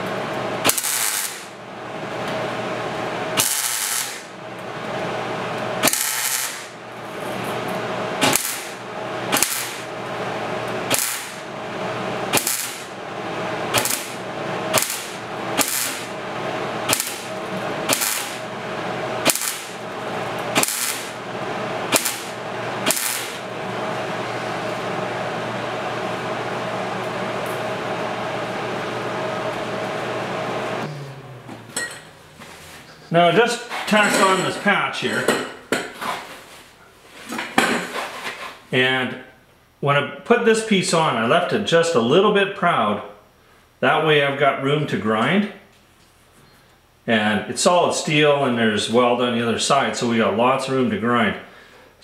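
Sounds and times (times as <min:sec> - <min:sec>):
tack welding bursts: 0:00.6 - 0:01.6, 0:03.4 - 0:04.4, 0:05.8 - 0:06.8, 0:08.2 - 0:10.0, 0:10.8 - 0:11.5, 0:12.2 - 0:13.0, 0:13.6 - 0:16.2, 0:16.8 - 0:23.5.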